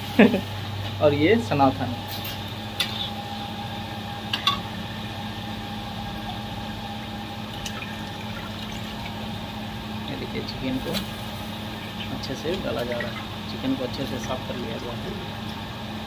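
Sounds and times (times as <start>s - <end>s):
chicken sizzling in hot oil: 2.1s - 13.5s.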